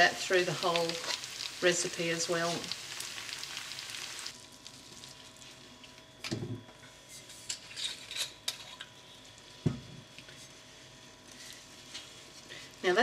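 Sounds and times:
faint sizzling: 0:00.0 - 0:06.0.

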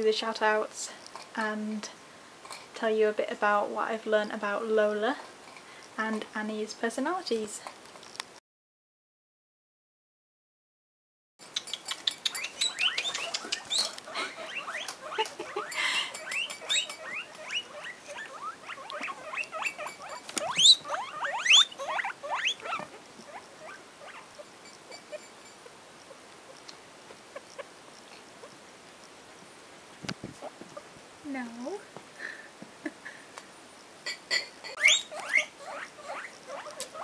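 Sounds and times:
guinea pigs wheeking: 0:11.5 - 0:29.2, 0:34.7 - 0:37.0.

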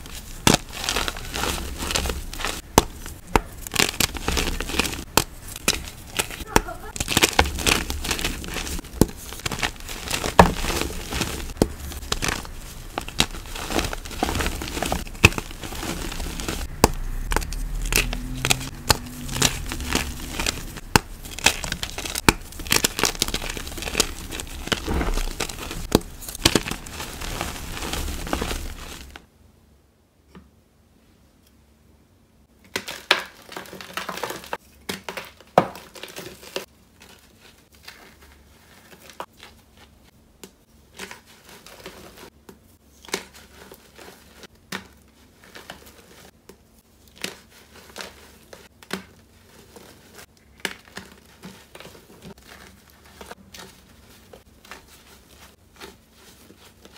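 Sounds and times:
hands crumbling chalk: 0:00.0 - 0:29.2.

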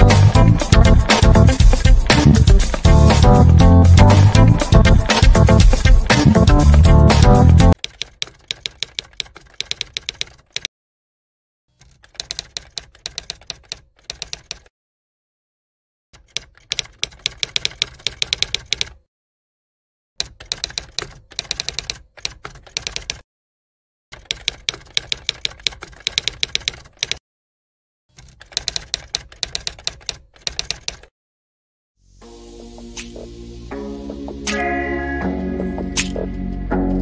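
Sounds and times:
music: 0:00.0 - 0:07.8, 0:32.0 - 0:37.0
typewriter key clicks: 0:07.8 - 0:10.7, 0:11.8 - 0:14.7, 0:16.2 - 0:19.0, 0:20.2 - 0:23.2, 0:24.2 - 0:27.2, 0:28.2 - 0:31.1, 0:36.0 - 0:36.2.

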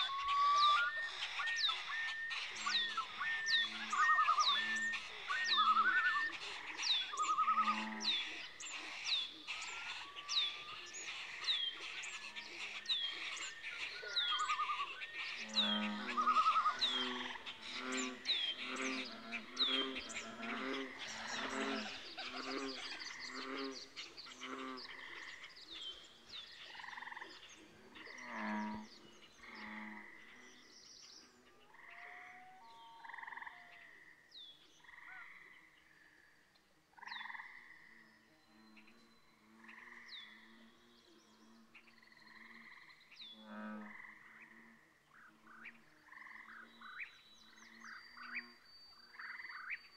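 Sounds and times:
frogs croaking: 0:00.0 - 0:49.9.

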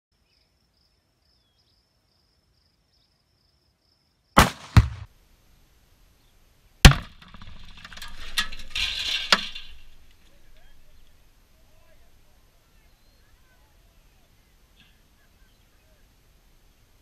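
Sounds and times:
explosive blast: 0:04.4 - 0:05.1
rifle shot: 0:04.4 - 0:05.1
debris clinking as it falls: 0:06.9 - 0:11.2.

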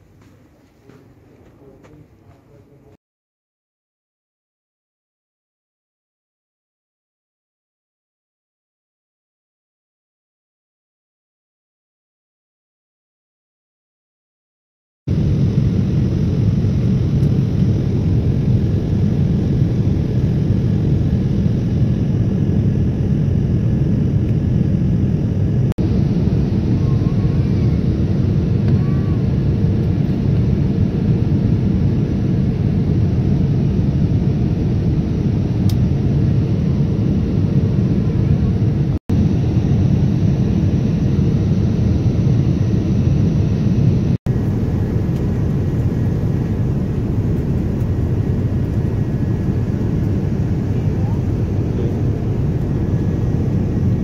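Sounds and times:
airliner cabin rumble: 0:15.1 - 0:54.0.

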